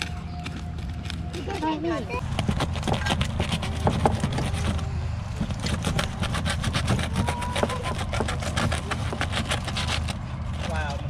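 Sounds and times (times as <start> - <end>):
low hum: 0.0 - 11.0
knife cutting foil: 2.2 - 11.0.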